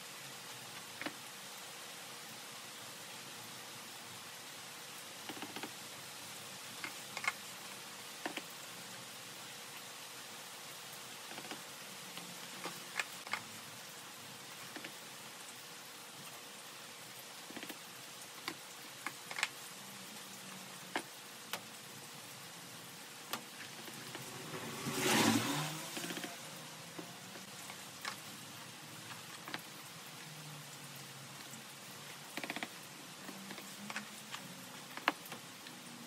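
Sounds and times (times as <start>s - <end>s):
plastic clicks and taps: 8.2s - 8.5s
noisy swell: 24.0s - 27.3s.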